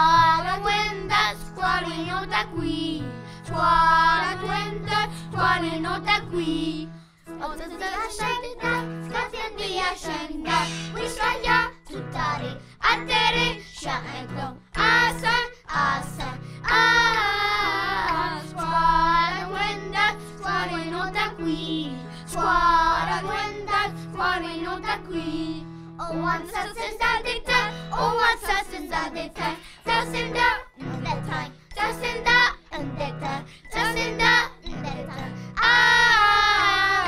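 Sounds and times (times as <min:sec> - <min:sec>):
children singing in unison: 0:00.0 - 0:06.9, 0:07.7 - 0:14.2, 0:14.8 - 0:33.0, 0:35.6 - 0:37.0
piano: 0:00.0 - 0:37.0.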